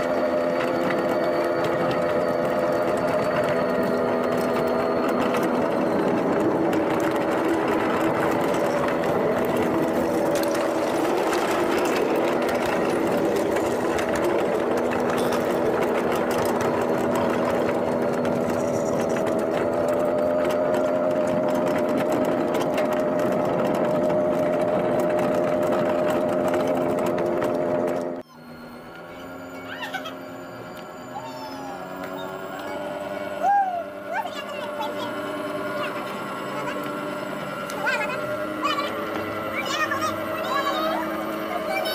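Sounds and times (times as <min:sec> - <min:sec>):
miniature train motor drone: 0:00.0 - 0:41.9
clicking and rattling: 0:00.6 - 0:28.2.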